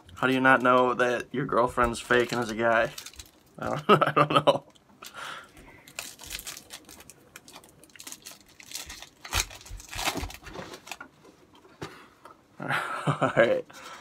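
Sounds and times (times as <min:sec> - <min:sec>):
foil wrapper tearing and crinkling: 0:02.0 - 0:03.7, 0:05.8 - 0:11.0.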